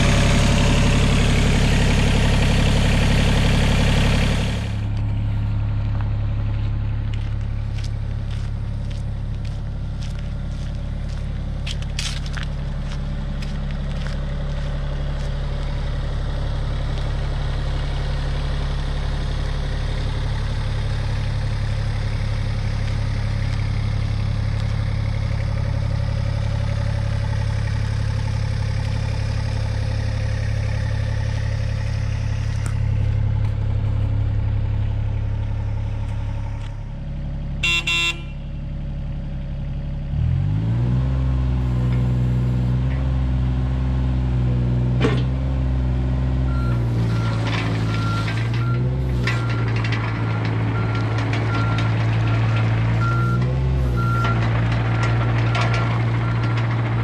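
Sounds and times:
diesel engine running: 0.0s - 57.0s
short beep: 37.6s - 38.4s.

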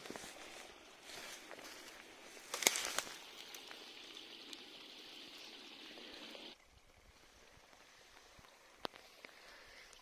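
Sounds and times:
stream trickling: 2.0s - 10.0s.

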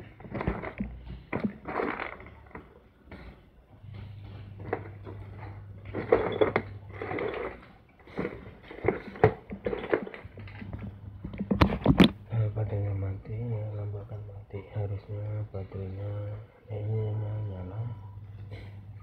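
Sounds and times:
handling clicks and rustling: 0.0s - 12.3s
low steady hum: 0.0s - 19.0s.

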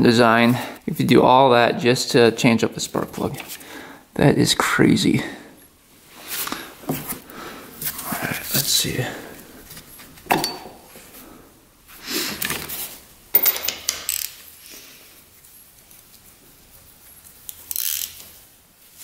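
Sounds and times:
metal hand tools clinking: 10.3s - 10.8s.

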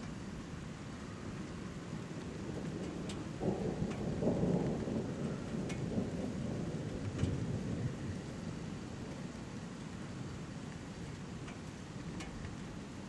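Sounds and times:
rolling thunder: 1.9s - 9.2s.

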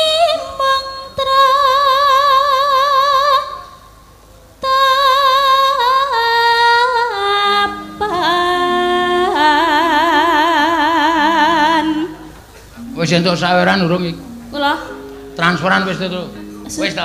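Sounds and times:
woman singing with vibrato: 0.0s - 4.0s, 4.6s - 17.0s.

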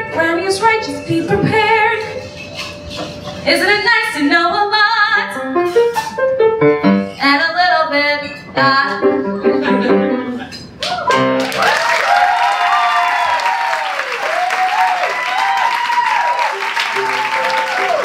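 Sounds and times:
woman singing: 0.0s - 2.3s, 3.4s - 5.6s, 7.2s - 10.5s
piano accompaniment: 0.0s - 11.8s, 16.1s - 18.0s
audience applause: 11.1s - 18.0s.

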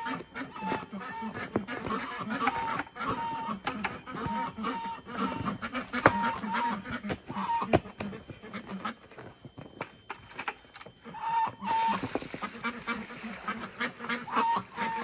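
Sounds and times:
chickens clucking: 0.0s - 15.0s
water splashing into a pan: 11.9s - 14.7s.

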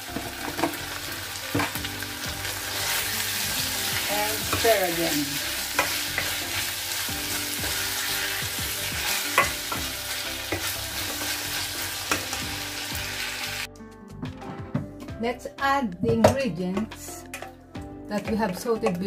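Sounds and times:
food sizzling in a pan: 0.0s - 13.7s
spatula scraping a pan: 7.3s - 11.5s.

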